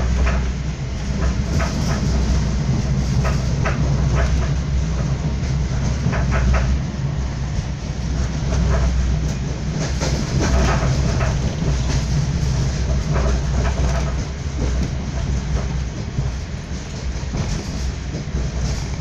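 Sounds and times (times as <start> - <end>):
train rumble: 0.0 - 19.0.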